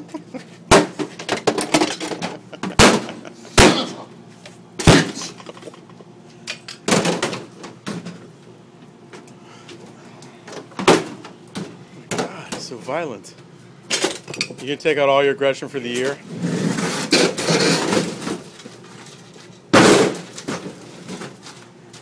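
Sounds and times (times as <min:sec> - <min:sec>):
refrigerator being smashed: 0:00.7 - 0:04.1, 0:04.8 - 0:05.8, 0:06.8 - 0:08.2, 0:10.8 - 0:12.6, 0:16.5 - 0:19.0, 0:19.7 - 0:21.6.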